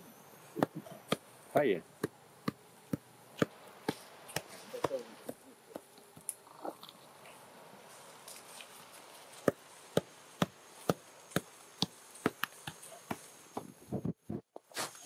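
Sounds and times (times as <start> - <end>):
hoe chopping into dry soil: 2.0 - 5.9, 9.4 - 13.8.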